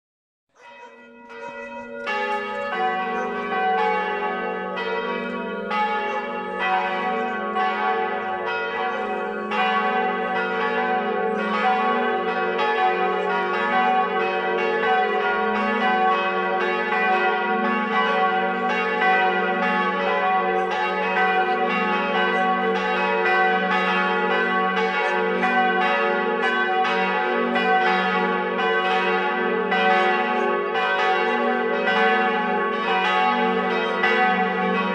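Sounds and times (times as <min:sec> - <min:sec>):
church bells ringing: 0:00.6 - 0:34.9.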